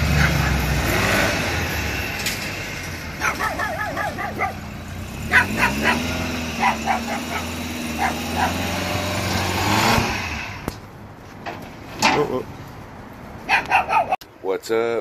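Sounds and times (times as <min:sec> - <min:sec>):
small truck engine revving: 0:00.0 - 0:10.8
dog barking: 0:03.2 - 0:04.7, 0:05.3 - 0:08.7, 0:13.5 - 0:14.2.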